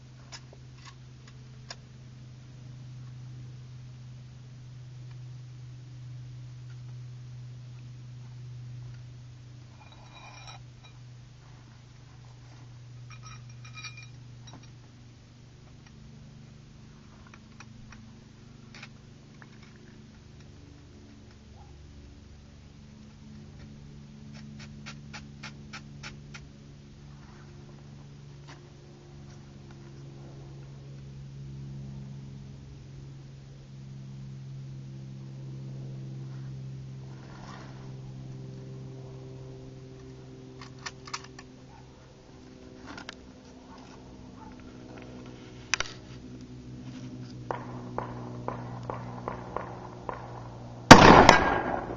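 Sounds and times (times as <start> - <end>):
steady low hum: 0.0 - 51.9
metal parts clinking: 9.8 - 11.0, 13.1 - 14.8.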